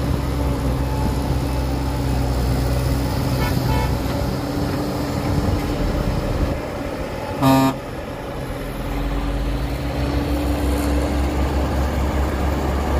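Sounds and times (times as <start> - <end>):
heavy diesel engine running: 0.0 - 12.9
short horn toot: 7.4 - 7.8.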